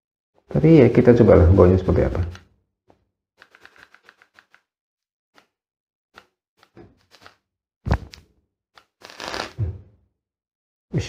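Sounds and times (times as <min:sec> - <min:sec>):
vape clicks and crackles: 0:08.8 - 0:09.6.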